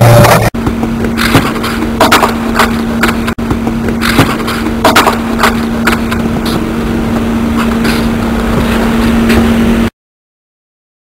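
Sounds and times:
outdoor background hum and hiss: 0.0s - 9.9s
sharp knocks: 0.2s - 6.6s.

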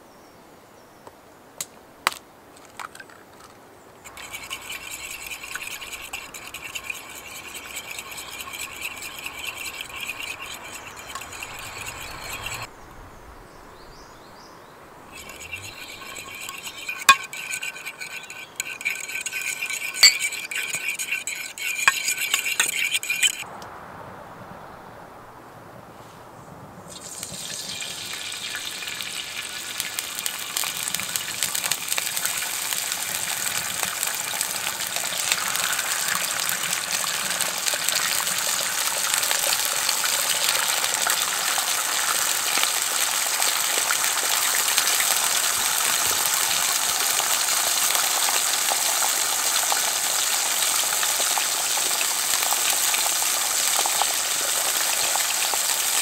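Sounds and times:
food sizzling in a frying pan: 26.9s - 56.0s.

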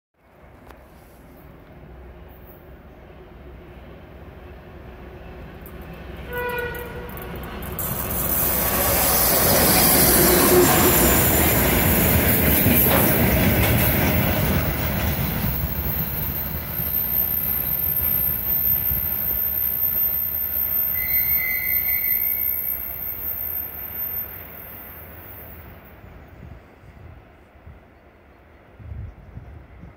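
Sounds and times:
diesel locomotive engine rumble: 0.4s - 29.9s
rail clatter of passing wagons: 2.1s - 26.4s
high wheel squeal: 7.8s - 12.1s, 14.6s - 25.9s
short tone: 16.8s - 25.8s.

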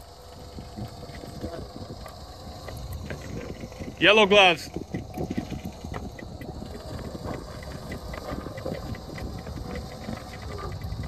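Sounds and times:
winch hauling in cable: 0.0s - 11.0s
fast faint clicks: 4.7s - 11.0s.

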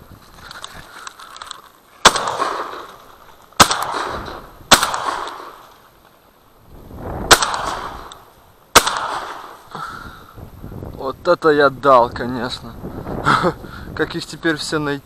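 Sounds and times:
shotgun shots with echo: 2.0s - 5.7s, 7.3s - 9.7s.

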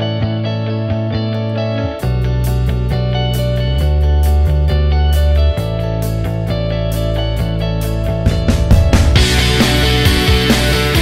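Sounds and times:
guitar instrumental music: 0.0s - 11.0s.

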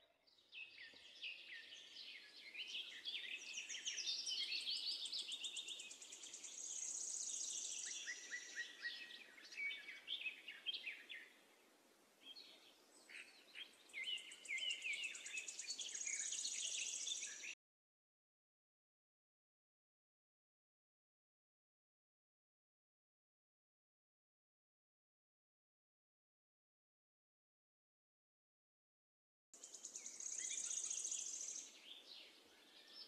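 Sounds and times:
birds chirping and trilling: 0.0s - 11.6s, 12.2s - 17.6s, 29.6s - 33.0s.

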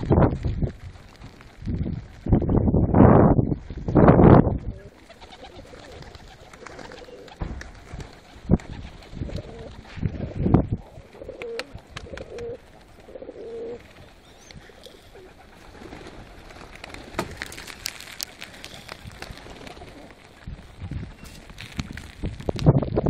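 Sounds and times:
pigeons cooing: 4.7s - 17.6s, 18.6s - 21.4s.

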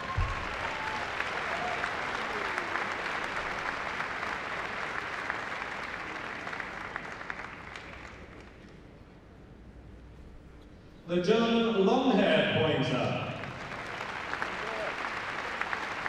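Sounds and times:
large audience applauding: 0.0s - 8.8s, 13.1s - 16.0s.

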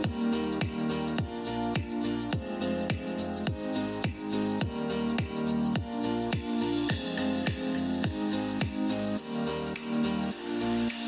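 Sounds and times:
deep kick drum: 5.8s - 8.8s.

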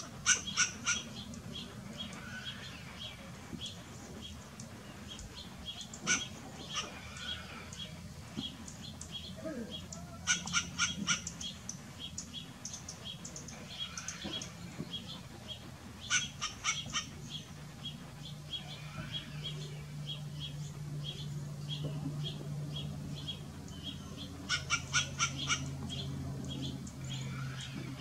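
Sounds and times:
squirrel barking: 0.0s - 1.3s, 5.8s - 7.5s, 9.4s - 11.8s, 16.0s - 17.4s, 23.8s - 25.8s.

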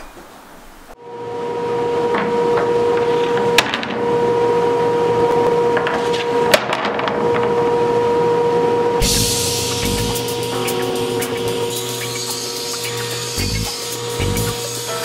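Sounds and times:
machine motor humming: 9.0s - 15.0s.

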